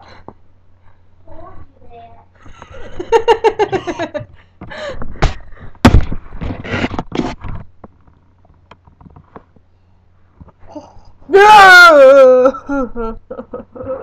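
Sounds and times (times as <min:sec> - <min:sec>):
girl laughing: 0:02.4 - 0:04.4, 0:11.9 - 0:14.0
rustling and bumps: 0:02.4 - 0:10.7
sharp knock: 0:05.2 - 0:06.2.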